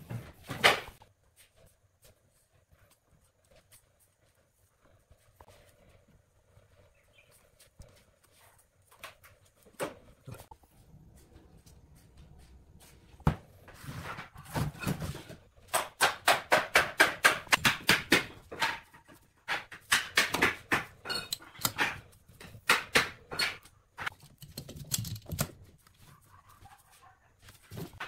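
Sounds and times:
metallic clicks and knocks: 0:19.8 - 0:25.6.

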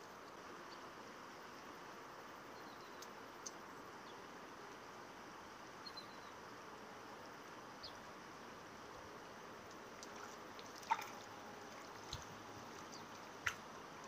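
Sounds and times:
flowing river: 0:09.6 - 0:14.0.

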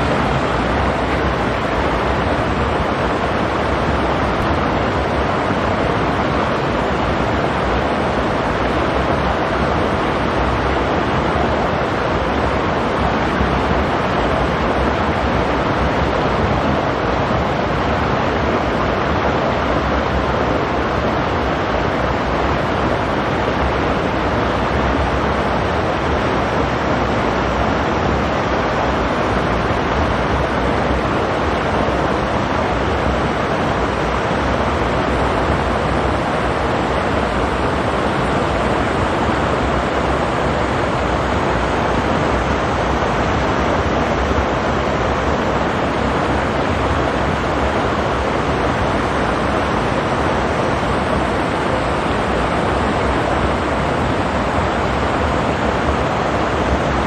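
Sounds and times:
stream rushing over rocks: 0:00.0 - 0:57.0.

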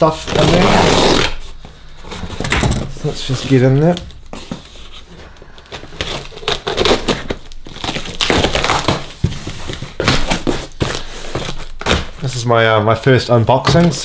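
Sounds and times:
cardboard flaps crinkling: 0:00.0 - 0:14.0
scissors cutting packing tape: 0:05.7 - 0:12.2.

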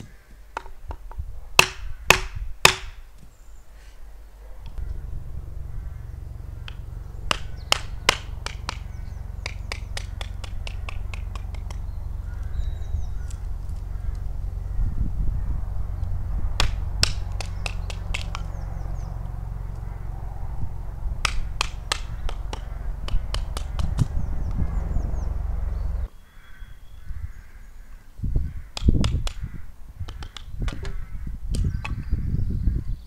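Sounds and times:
low rumble: 0:04.3 - 0:26.1
faint bird chirps: 0:11.6 - 0:16.2, 0:24.2 - 0:28.1.

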